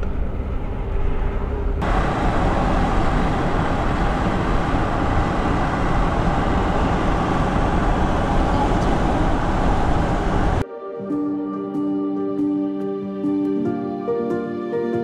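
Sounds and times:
moving vehicle road noise: 0:00.0 - 0:10.6.

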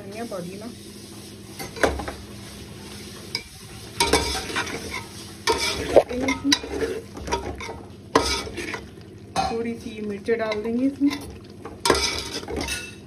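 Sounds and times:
light sizzle: 0:00.0 - 0:13.0
metal spatula scraping a pot: 0:03.3 - 0:08.9, 0:10.5 - 0:13.0.

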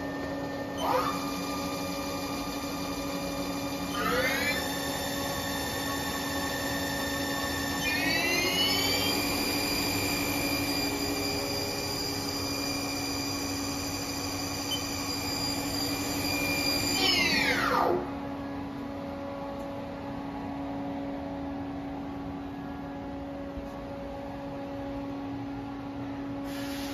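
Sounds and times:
lathe spindle whine: 0:00.0 - 0:19.6
machine low hum: 0:00.0 - 0:26.5.

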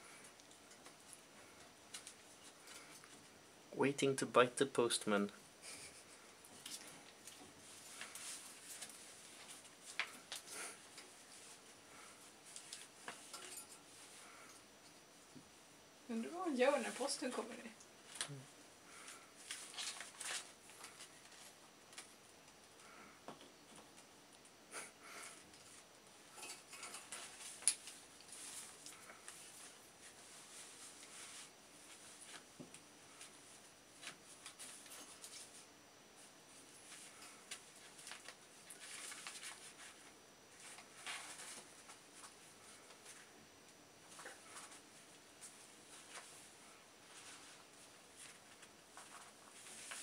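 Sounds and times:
rustling of newspaper: 0:18.9 - 0:22.1, 0:36.8 - 0:43.2, 0:44.4 - 0:50.0.

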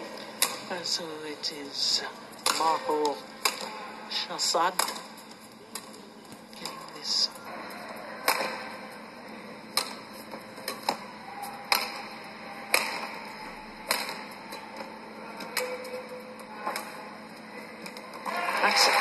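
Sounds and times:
rackets hitting shuttlecock: 0:00.2 - 0:00.7, 0:02.3 - 0:03.8, 0:04.8 - 0:09.0, 0:09.6 - 0:17.0.

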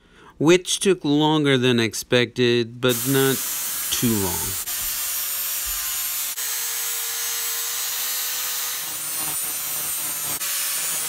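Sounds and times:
angle grinder grinding steel: 0:02.9 - 0:11.0.

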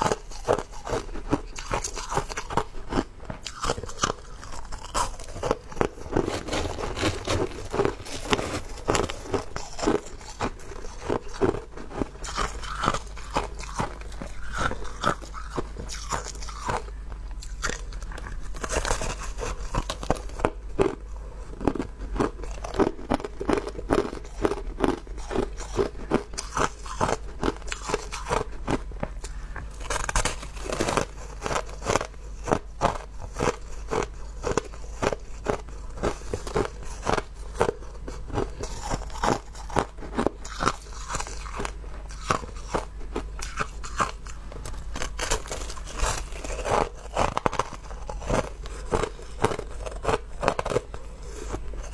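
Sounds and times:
crushed ice crunching: 0:03.5 - 0:16.9, 0:45.0 - 0:51.6.

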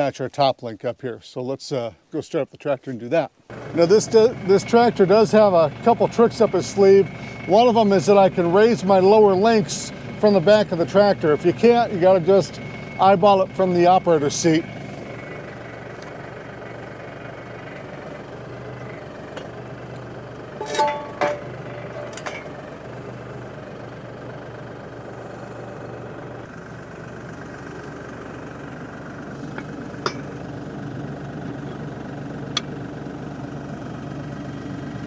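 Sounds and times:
tractor engine idling: 0:03.4 - 0:35.0
sharp metallic knocks: 0:20.6 - 0:22.6.

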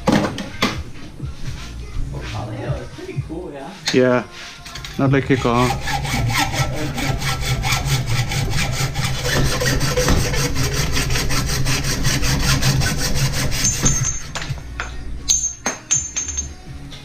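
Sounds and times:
hacksaw cutting metal: 0:04.7 - 0:14.5.

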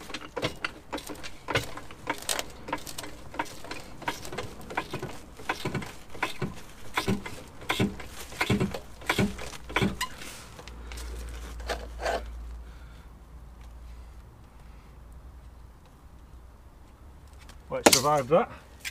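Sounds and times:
trolley jack pumping clicks: 0:00.0 - 0:10.3.

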